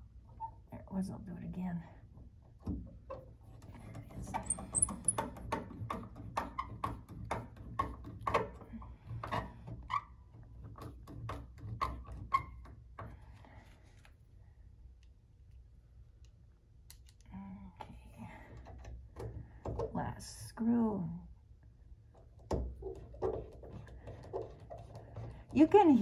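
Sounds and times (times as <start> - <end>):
screw squeaking: 3.0 - 13.1, 22.3 - 25.7
screwdriver clicks and creaks: 16.2 - 17.3.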